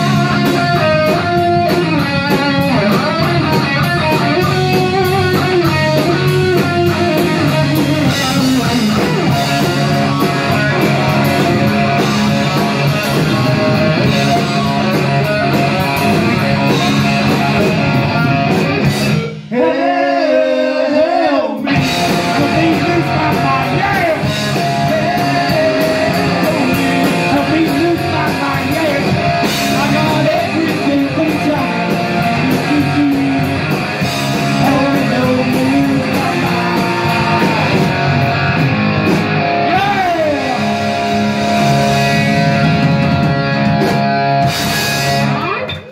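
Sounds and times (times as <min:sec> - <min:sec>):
man singing: 0:00.0 - 0:09.1, 0:19.5 - 0:33.7, 0:34.3 - 0:38.0, 0:39.7 - 0:41.1
electric guitars: 0:00.0 - 0:19.8, 0:21.6 - 0:45.9
bass guitar: 0:00.0 - 0:45.9
drums: 0:00.0 - 0:45.9.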